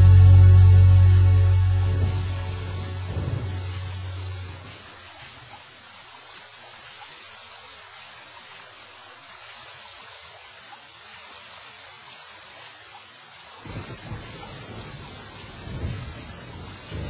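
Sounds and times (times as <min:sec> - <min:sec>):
low rumble: 0:00.0 - 0:05.1
rain hissing: 0:00.0 - 0:17.0.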